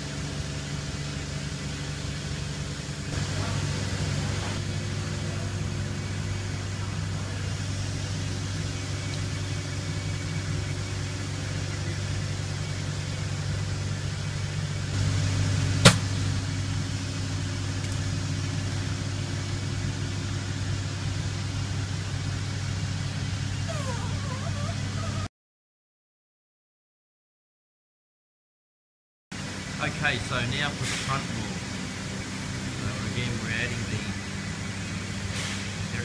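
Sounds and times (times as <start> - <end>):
workshop hum: 0.0 - 25.3
sharp click: 15.8 - 16.0.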